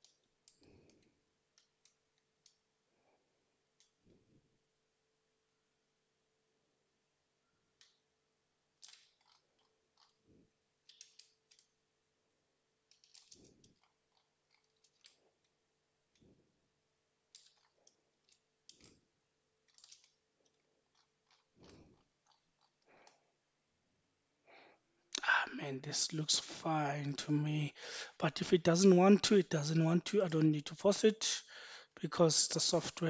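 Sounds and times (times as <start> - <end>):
small scattered clicks: 0.0 - 2.7, 7.8 - 8.1, 8.8 - 11.8, 12.8 - 16.4, 17.3 - 23.2
faint steady hum: 0.0 - 33.0.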